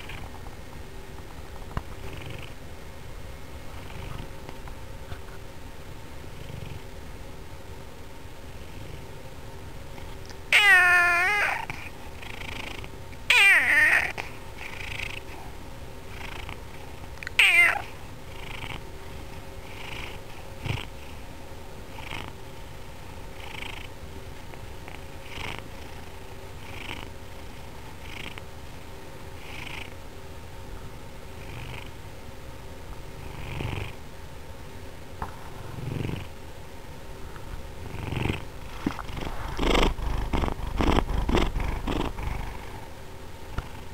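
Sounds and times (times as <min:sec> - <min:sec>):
cat purring: 0:00.0 - 0:00.4, 0:02.0 - 0:02.6, 0:03.7 - 0:04.4, 0:06.3 - 0:06.9, 0:10.6 - 0:15.4, 0:16.1 - 0:16.6, 0:17.4 - 0:18.8, 0:19.7 - 0:21.1, 0:25.2 - 0:28.4, 0:33.2 - 0:34.0, 0:35.3 - 0:36.3, 0:37.8 - 0:43.9
cat meowing: 0:10.5 - 0:11.7, 0:13.3 - 0:14.2, 0:17.3 - 0:17.9.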